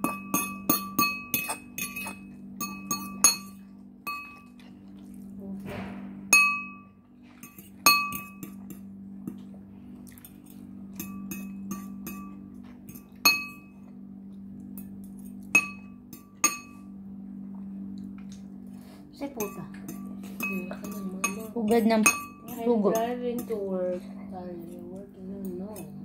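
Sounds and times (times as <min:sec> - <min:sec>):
fork clinking against ceramic bowl: 0:00.0 - 0:04.6, 0:07.4 - 0:08.9, 0:10.2 - 0:13.7, 0:14.8 - 0:16.8, 0:19.4 - 0:23.6
steady low hum: 0:00.0 - 0:26.0.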